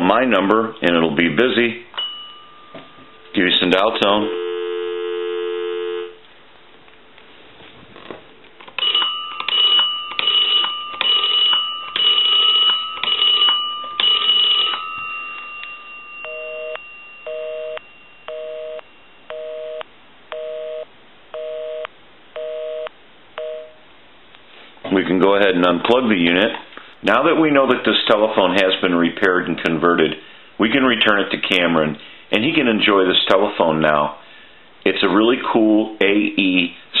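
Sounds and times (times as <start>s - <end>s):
dial tone: 4.2s - 6.2s, 16.3s - 23.8s
two-tone busy signal beeps: 16.3s - 19.8s.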